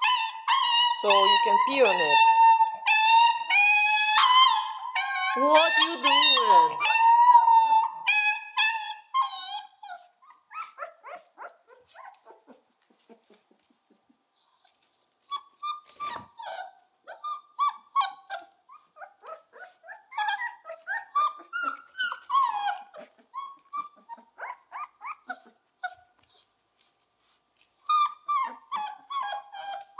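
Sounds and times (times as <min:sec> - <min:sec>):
puppy howling: 0:00.0 - 0:09.9, 0:19.0 - 0:25.5
puppy whimpering and yelping: 0:00.0 - 0:29.9.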